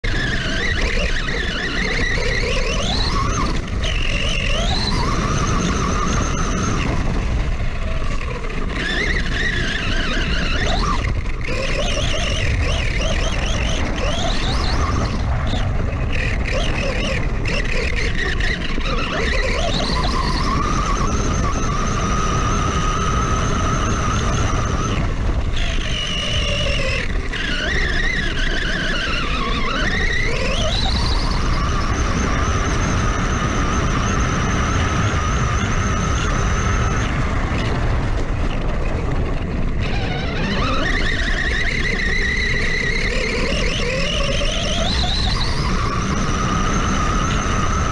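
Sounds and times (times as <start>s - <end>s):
electric motor whine: 0.0s - 47.9s
wind and tyres through grass: 0.0s - 47.9s.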